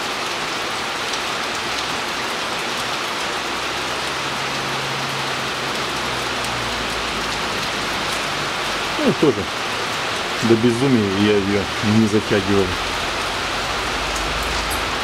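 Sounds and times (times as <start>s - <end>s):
rain falling: 0.0s - 15.0s.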